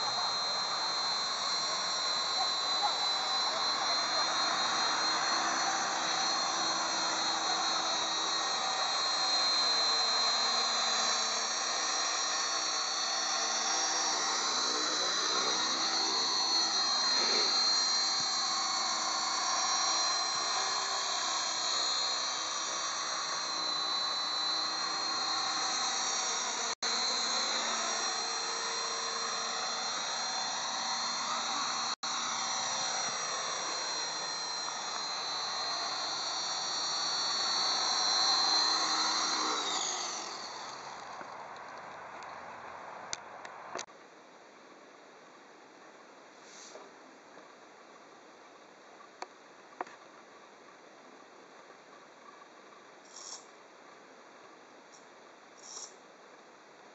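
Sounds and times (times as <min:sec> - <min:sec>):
helicopter blades whirring: 0:00.0 - 0:41.6
toy helicopter motor whine: 0:00.0 - 0:42.6, 0:53.1 - 0:53.5, 0:55.6 - 0:56.0.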